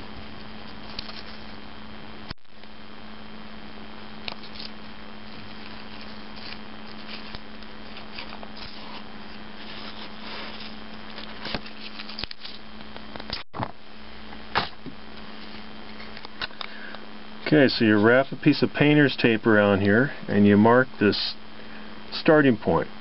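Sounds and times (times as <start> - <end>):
steady low hum: 0.0 - 23.0
tape rustling and scraping: 0.7 - 1.6, 4.3 - 12.6.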